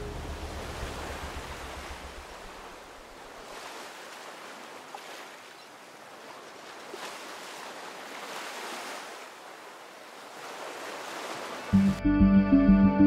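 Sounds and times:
background music: 0:00.0 - 0:01.8, 0:11.7 - 0:13.0
sea surf washing on beach: 0:00.0 - 0:11.8.

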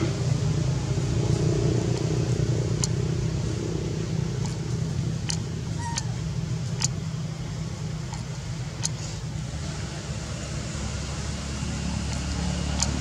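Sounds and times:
low motor hum: 0:00.0 - 0:13.0
sharp clicks: 0:01.9 - 0:03.1, 0:04.3 - 0:07.1, 0:08.0 - 0:09.2, 0:12.0 - 0:13.0
baby monkey squeak: 0:05.8 - 0:06.2.

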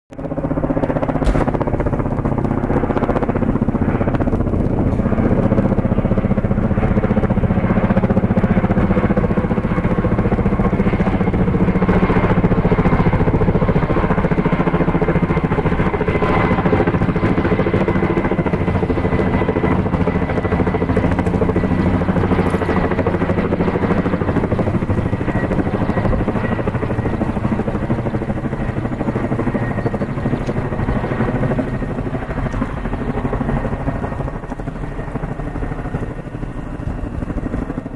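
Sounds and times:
helicopter flying overhead: 0:00.1 - 0:37.9.

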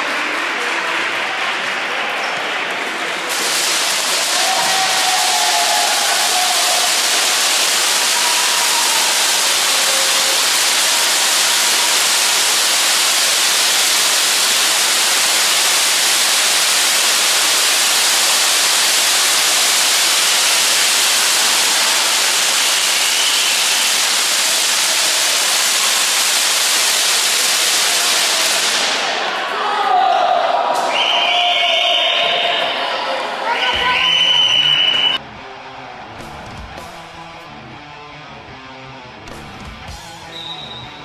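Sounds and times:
pyrotechnic fountains hissing: 0:03.1 - 0:29.4.

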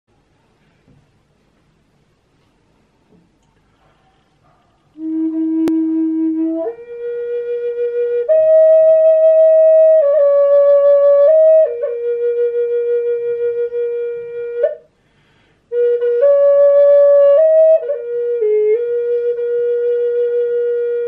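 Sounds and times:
wooden flute long notes: 0:05.0 - 0:15.0, 0:15.7 - 0:21.0.

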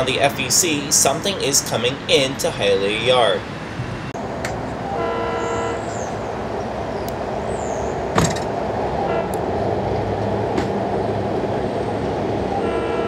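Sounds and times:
train rumble: 0:00.0 - 0:13.0
train horn: 0:04.9 - 0:06.0, 0:09.0 - 0:09.4, 0:12.5 - 0:13.0.

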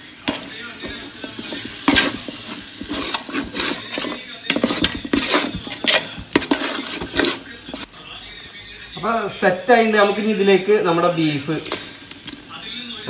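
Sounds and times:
metal spoon scraping a pot: 0:00.2 - 0:07.9.

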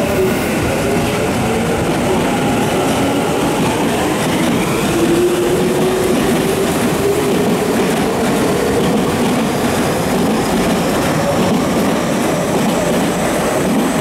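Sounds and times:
train wheel and rail noise: 0:00.0 - 0:14.0.

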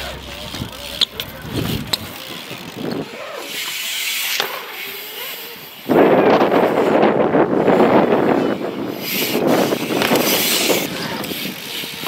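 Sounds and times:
wind buffeting microphone: 0:00.0 - 0:03.2, 0:05.8 - 0:12.0
bike rolling on concrete: 0:00.0 - 0:12.0.

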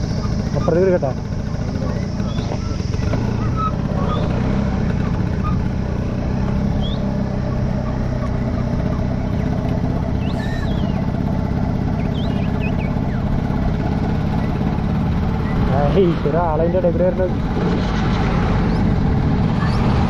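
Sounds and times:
scooter engine running: 0:00.0 - 0:20.0
faint high chirps: 0:06.5 - 0:11.1, 0:11.9 - 0:13.3.

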